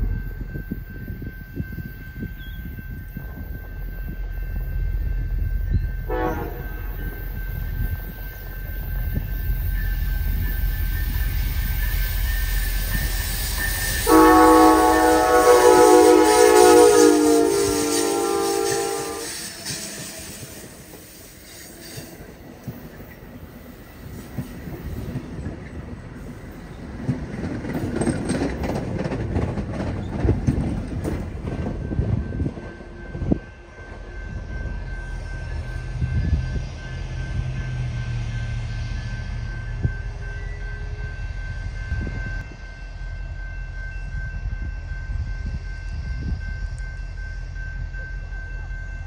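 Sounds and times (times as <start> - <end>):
train wheels rumbling and clacking: 0.0 - 49.0.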